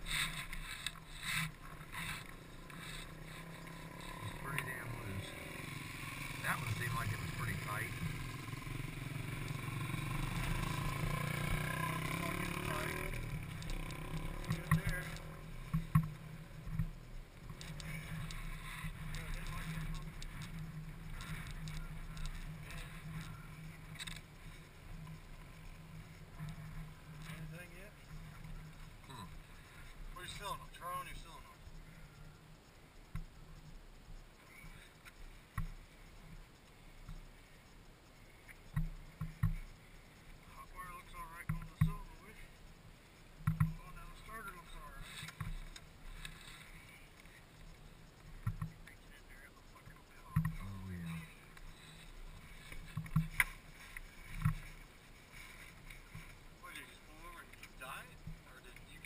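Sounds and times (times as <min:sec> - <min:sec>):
quad bike engine idling: 0:00.0 - 0:59.0
faint clicks and knocks from hands: 0:41.2 - 0:59.0.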